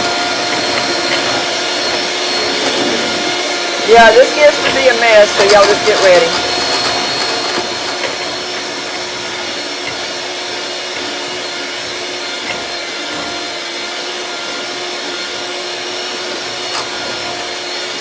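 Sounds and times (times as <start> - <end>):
electric mixer motor whine: 0.0 - 18.0.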